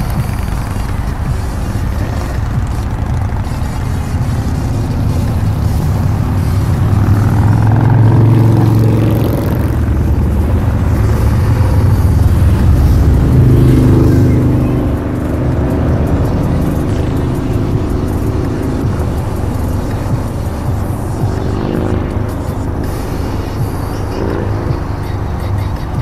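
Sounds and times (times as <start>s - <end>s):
motorcycles passing: 0.0s - 26.0s
vehicle engines running: 0.0s - 26.0s.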